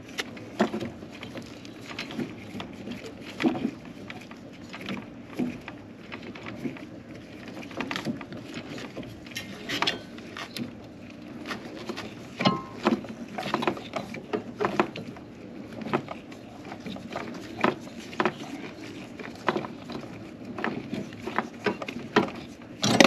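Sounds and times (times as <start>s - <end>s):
knocks and scrapes of compressor: 11.6s - 23.0s.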